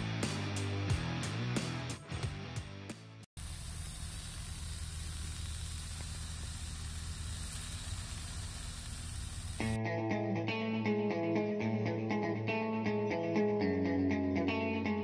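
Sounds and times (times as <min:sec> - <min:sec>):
steaks sizzling in skillet: 0:03.4 - 0:09.8
guitar music: 0:09.6 - 0:15.0.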